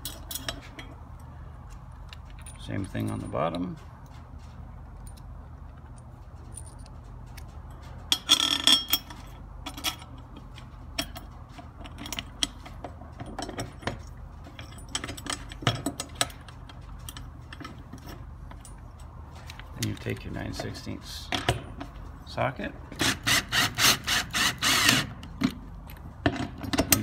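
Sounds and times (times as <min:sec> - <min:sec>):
metal hardware clinking and rattling: 0:00.0 - 0:22.2, 0:25.3 - 0:27.0.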